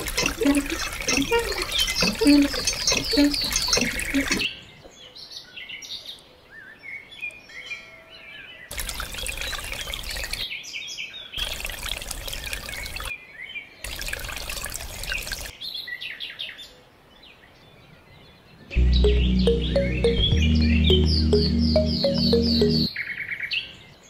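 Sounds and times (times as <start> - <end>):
pouring water: 0.0 - 4.4, 8.7 - 10.4, 11.4 - 13.1, 13.9 - 15.5
birds chirping: 0.0 - 4.5.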